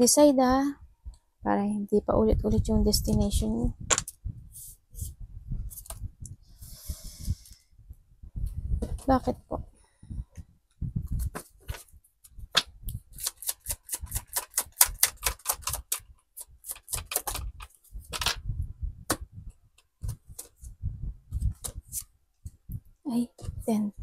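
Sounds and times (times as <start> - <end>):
cards shuffling and clicking: 12.5 - 18.4.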